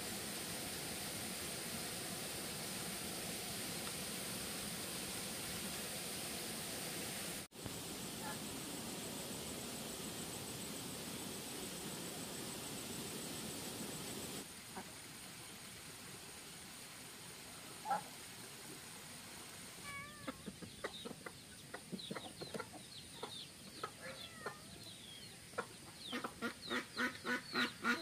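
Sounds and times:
chickens clucking: 0:20.2 - 0:24.7, 0:25.5 - 0:28.0.

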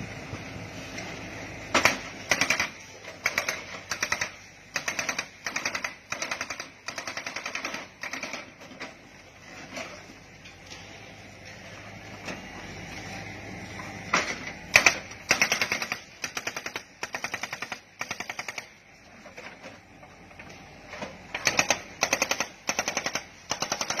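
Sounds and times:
hydraulic breaker hammering concrete: 0:21.4 - 0:24.0.

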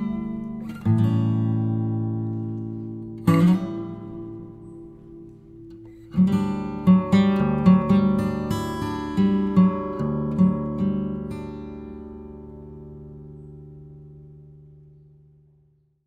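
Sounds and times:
acoustic guitar music: 0:00.0 - 0:15.9.

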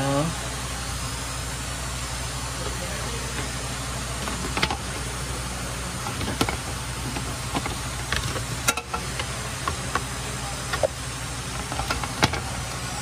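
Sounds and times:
steady low hum: 0:00.0 - 0:13.0
clicks and knocks of handling parts: 0:04.2 - 0:05.0, 0:06.0 - 0:10.1, 0:10.7 - 0:12.5.

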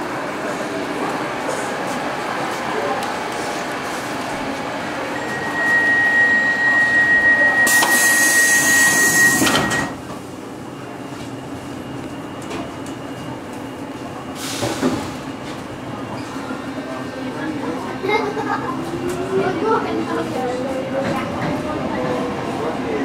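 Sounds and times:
train car background noise: 0:00.0 - 0:23.0
train doors shutting: 0:00.5 - 0:16.6
high warning tone: 0:05.1 - 0:10.0.

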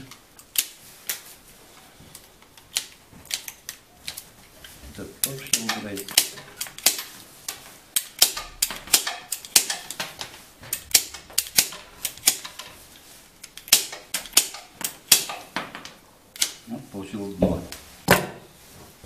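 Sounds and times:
pruning shears snipping: 0:00.0 - 0:01.2, 0:02.2 - 0:15.6, 0:16.3 - 0:16.7.

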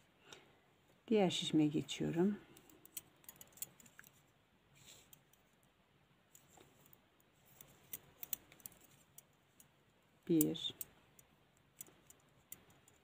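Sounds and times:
knitting needles clicking: 0:02.5 - 0:04.3, 0:04.9 - 0:13.0.

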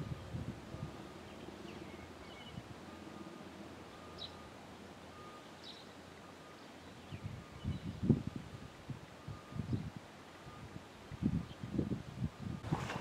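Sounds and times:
low wind rumble: 0:00.0 - 0:04.8, 0:06.9 - 0:13.0
bird chirps: 0:01.2 - 0:02.6, 0:03.9 - 0:04.5, 0:05.1 - 0:08.0.

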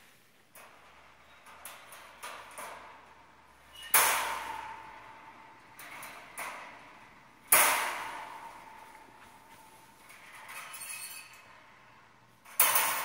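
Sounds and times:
ringing metal impacts: 0:12.5 - 0:13.0
wire bird cage clanking: 0:12.5 - 0:13.0.

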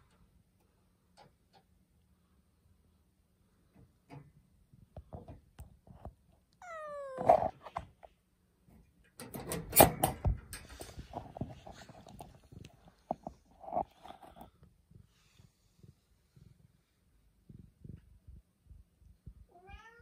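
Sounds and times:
cat meowing: 0:06.6 - 0:07.6, 0:19.5 - 0:20.0.

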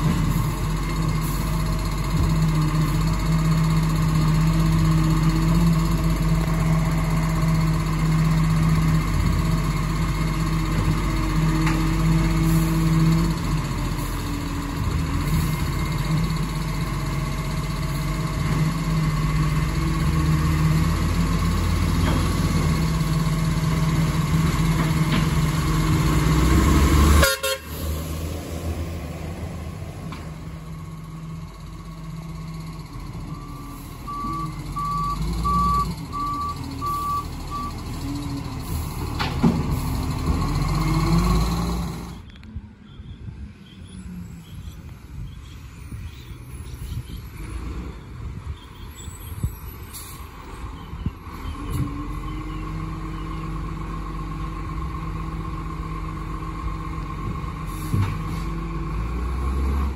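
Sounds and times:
diesel engine running: 0:00.0 - 0:59.9
reversing alarm beeps: 0:33.3 - 0:37.8.

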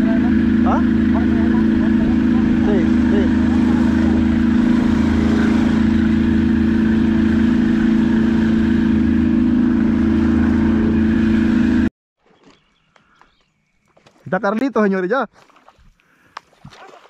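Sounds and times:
motorboat engine running: 0:00.0 - 0:11.9
wind: 0:00.0 - 0:17.0
water rushing: 0:01.2 - 0:08.9.

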